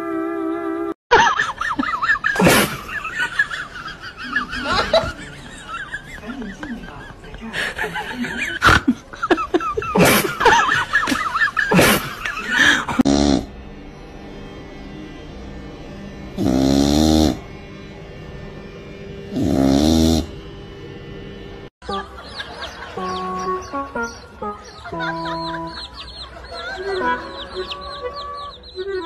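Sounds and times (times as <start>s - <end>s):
cat snoring: 16.4s - 17.4s, 19.3s - 20.3s
squeaky calls: 21.9s - 29.0s.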